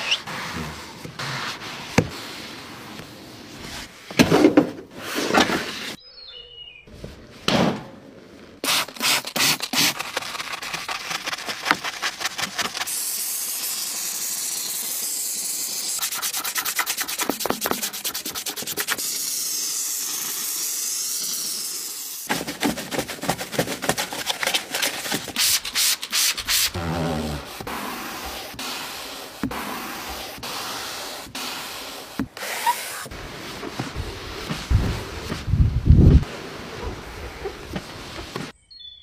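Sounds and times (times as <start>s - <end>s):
brush scrubbing carpet: 0.0s - 4.0s, 8.6s - 13.4s, 16.0s - 19.0s, 22.3s - 38.5s
steady hiss: 12.8s - 16.1s, 18.4s - 22.3s.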